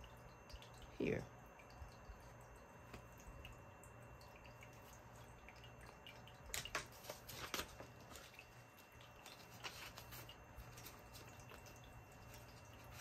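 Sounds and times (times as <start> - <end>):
faint low hum: 0.0 - 13.0
plastic sleeves and paper crinkling: 6.5 - 13.0.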